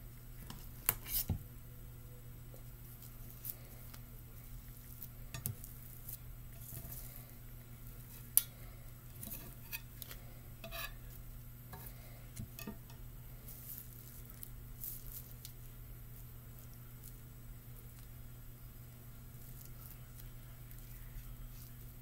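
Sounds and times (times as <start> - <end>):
knife spreading rice: 9.2 - 11.2.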